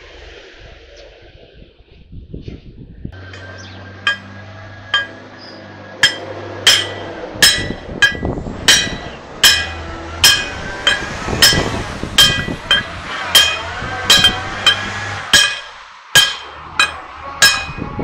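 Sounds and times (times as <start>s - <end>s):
hammer striking steel bar: 3.2s - 4.3s, 4.9s - 5.2s, 6.0s - 18.0s.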